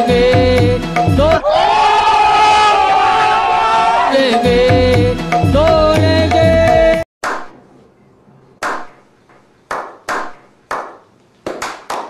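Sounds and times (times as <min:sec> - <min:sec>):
slow hand claps: 0:09.7 - 0:12.0.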